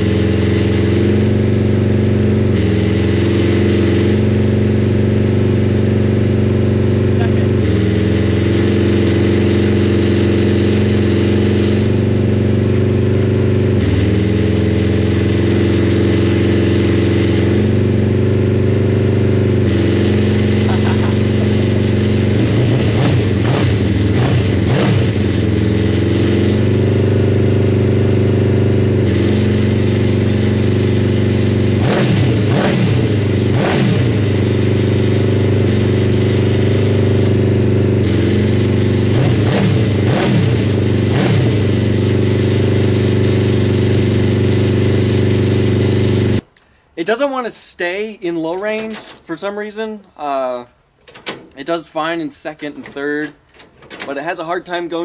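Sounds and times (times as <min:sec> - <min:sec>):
motorcycle engine revving: 0:00.0 - 0:46.5.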